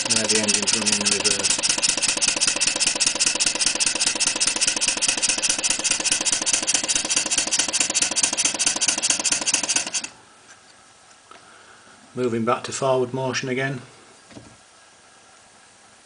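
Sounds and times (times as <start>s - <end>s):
steam engine exhaust puffing: 0.0s - 10.1s.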